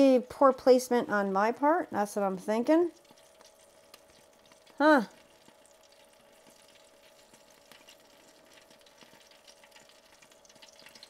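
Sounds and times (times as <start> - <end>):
faint steady hum: 0.0 - 11.0
hot fat sizzling in pan: 0.0 - 11.0.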